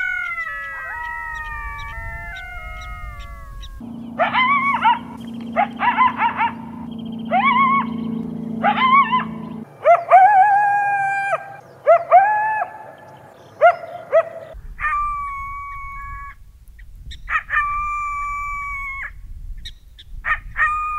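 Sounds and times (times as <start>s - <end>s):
coyote yips: 0.0s - 8.0s, 13.6s - 20.9s
coyotes howling: 0.0s - 16.5s, 17.1s - 19.2s, 20.2s - 20.9s.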